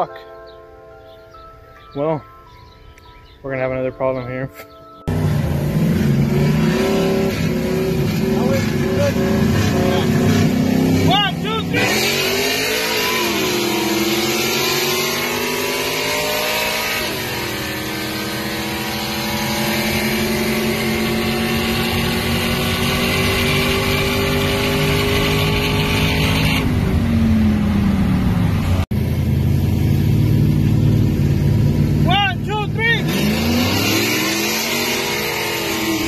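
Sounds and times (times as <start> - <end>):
pickup engine accelerating hard: 5.1 - 36.0
low steady engine rumble: 26.7 - 32.8.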